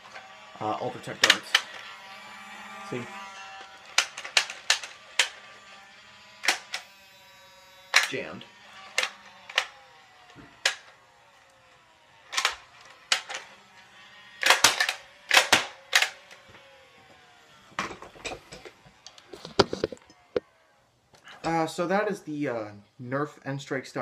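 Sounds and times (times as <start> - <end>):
blaster handling rattles: 0.0 - 7.0, 7.8 - 13.6, 14.3 - 16.6
toy blaster firing clacks: 0.0 - 20.6
faint flywheel whine: 0.0 - 21.6.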